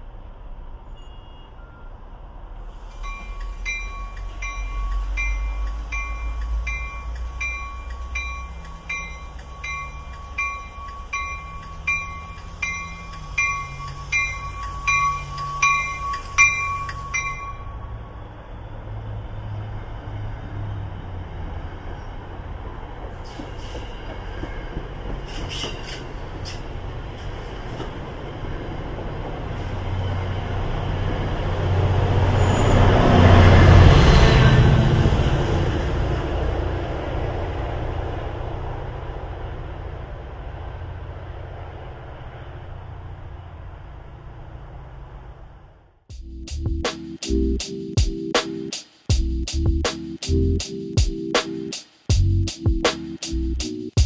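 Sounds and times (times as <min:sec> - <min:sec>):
railroad warning bell ringing: 0:00.9 - 0:01.9, 0:02.9 - 0:19.0
train rumble: 0:02.0 - 0:54.0
sharp clicks: 0:03.3 - 0:14.0.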